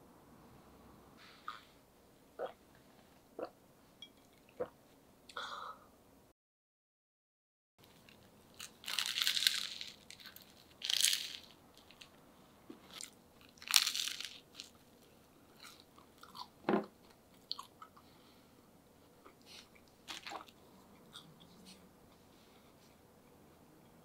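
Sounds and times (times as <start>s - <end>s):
crackly crunches of sandwich: 7.8s - 12.1s, 12.9s - 14.8s
small crackles: 7.8s - 12.2s.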